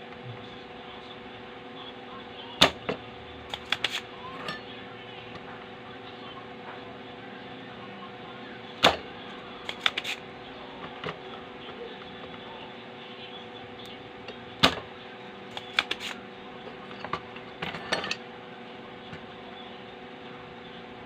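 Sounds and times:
steady low hum: 0.0 - 21.0
desoldering pump snapping: 2.6 - 4.0, 8.8 - 10.2, 15.5 - 16.2.

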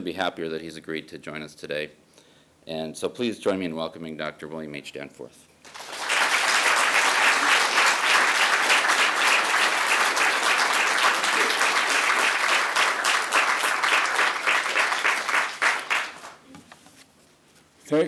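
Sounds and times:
audience applauding: 5.7 - 16.4.

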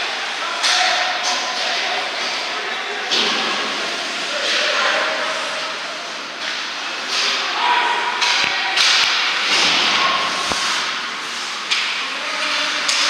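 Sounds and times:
hockey sticks and puck clacking: 0.6 - 2.4, 6.4 - 13.0
skate blades scraping ice: 10.2 - 11.8.

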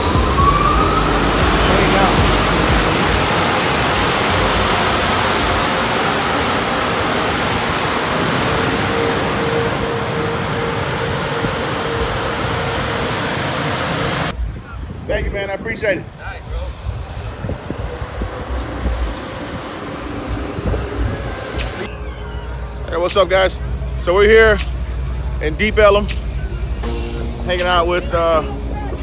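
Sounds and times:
water jet spraying on car: 0.0 - 14.4, 15.7 - 21.9.

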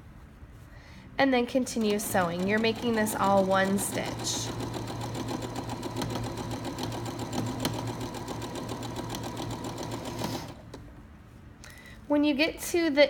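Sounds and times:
sewing machine stitching: 1.5 - 10.8.

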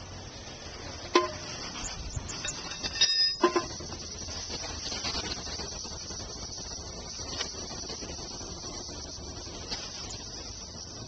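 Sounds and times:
steady high-pitched hiss: 0.0 - 11.0
metal clinks: 2.3 - 3.8.

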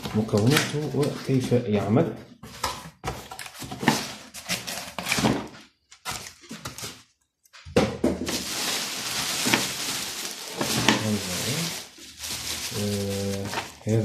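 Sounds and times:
plastic wrap crinkling: 8.2 - 14.0.

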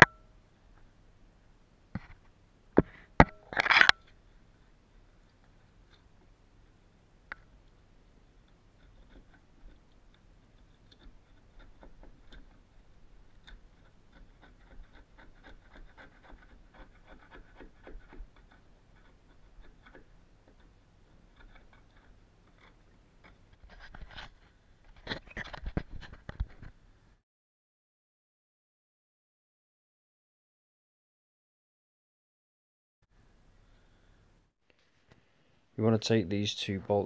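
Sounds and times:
scraper blade scraping: 3.6 - 3.9, 8.7 - 26.6
knocks and rustles: 21.3 - 26.8.

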